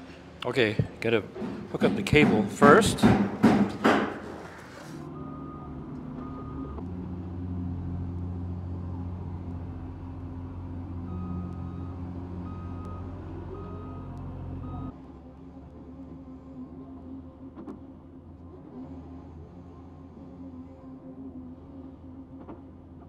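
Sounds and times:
heavy vehicle engine drone: 0.0s - 23.0s
reversing alarm beeping: 5.1s - 6.8s, 11.1s - 15.0s.

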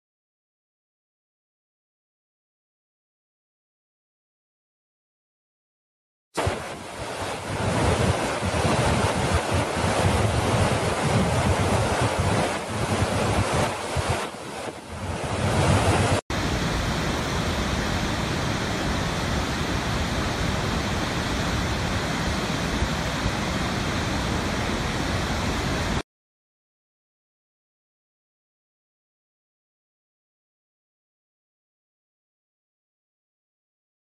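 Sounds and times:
waterfall rushing: 6.4s - 26.0s
wind buffeting microphone: 6.4s - 26.0s.

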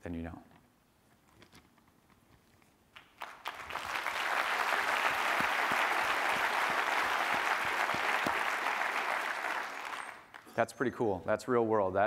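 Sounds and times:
audience applauding: 3.0s - 10.5s.

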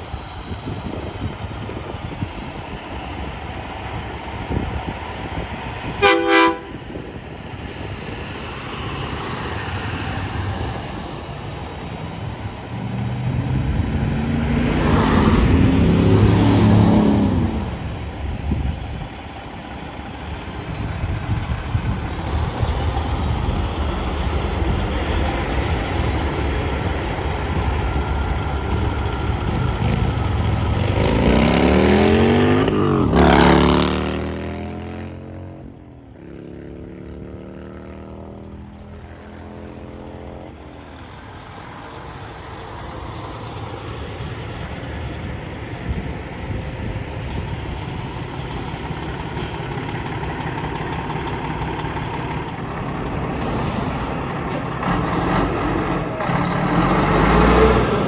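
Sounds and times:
diesel truck passing: 0.0s - 58.0s
truck horn blast: 6.0s - 6.8s
motorcycle passing: 29.4s - 40.5s.

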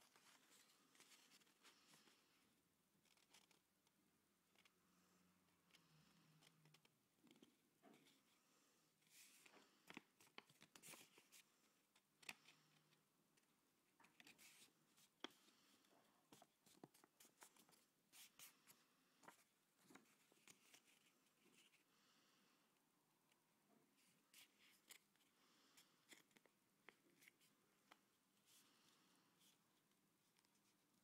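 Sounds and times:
soft clicks of paper creases: 0.0s - 8.4s, 9.0s - 21.9s, 23.2s - 31.0s.

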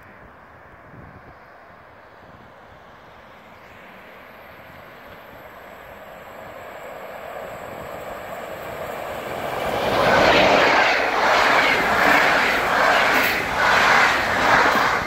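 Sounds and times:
train rushing past: 5.7s - 15.0s.

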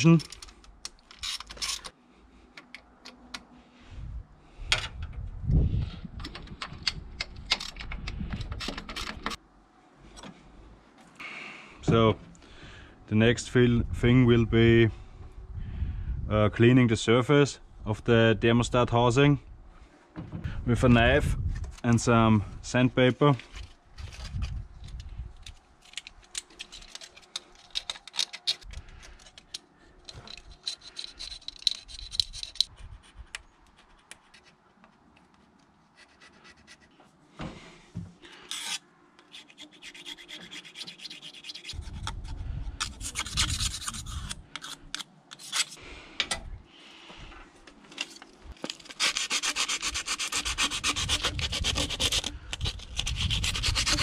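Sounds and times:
metal being scraped: 38.3s - 45.8s
sandpaper rubbing on metal: 38.5s - 42.0s, 42.8s - 44.4s, 48.9s - 54.0s.

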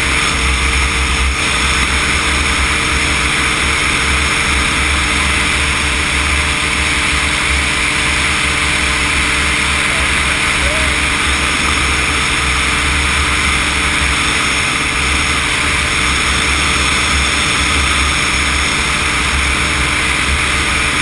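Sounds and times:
microlight engine and propeller: 0.0s - 21.0s.

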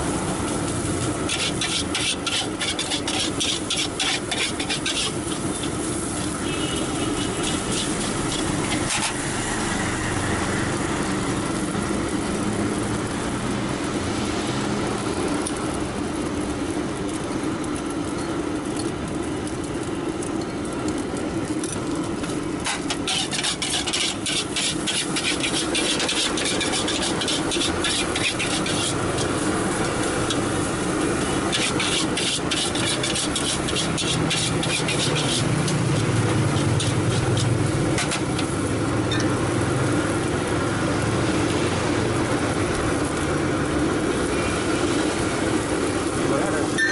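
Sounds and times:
engine and traffic noise: 0.0s - 46.9s
spatula scraping a metal wok: 0.4s - 10.0s, 22.6s - 38.6s.

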